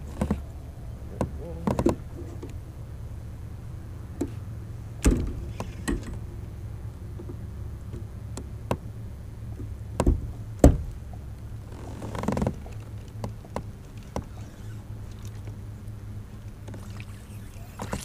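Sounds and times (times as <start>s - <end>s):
steady low rumble: 0.0s - 18.0s
gear knocking against kayak hull: 1.2s - 2.6s, 9.5s - 11.0s, 12.0s - 14.4s.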